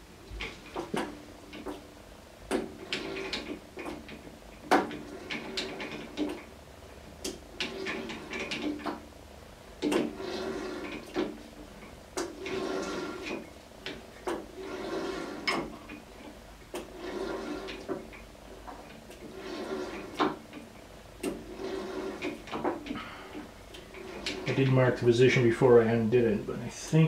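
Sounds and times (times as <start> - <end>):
metal scraping and rattling: 2.5 - 6.5, 7.5 - 9.0, 9.8 - 13.6, 14.2 - 25.5.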